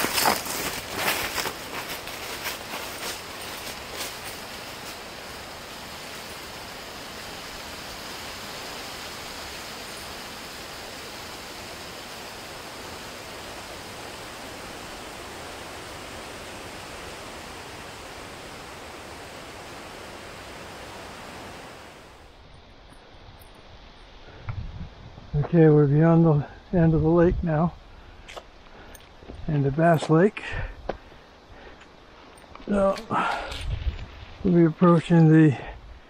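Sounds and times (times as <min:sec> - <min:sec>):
steady rushing noise: 0:00.0 - 0:26.0.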